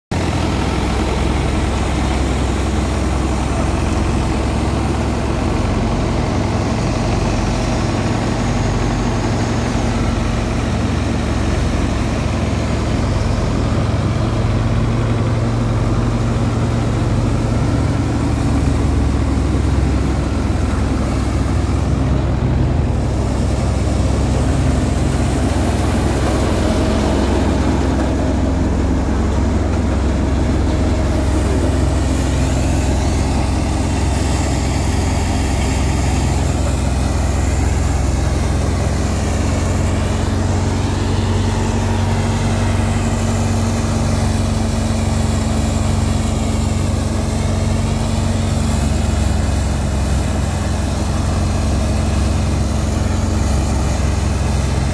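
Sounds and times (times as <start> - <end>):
diesel tractor engine running: 0.1 - 54.9
thresher drum and blower drone: 0.1 - 54.9.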